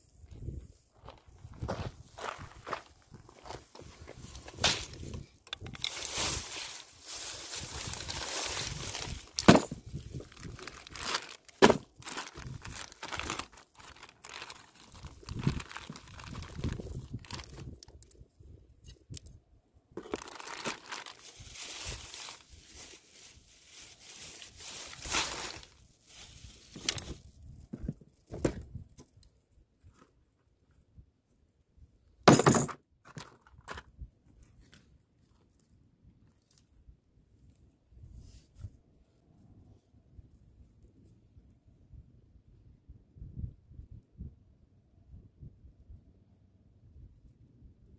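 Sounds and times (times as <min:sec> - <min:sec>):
plastic bags crinkling: 0:04.2 - 0:17.9, 0:20.0 - 0:27.2
plastic tackle box opening: 0:11.6 - 0:12.0.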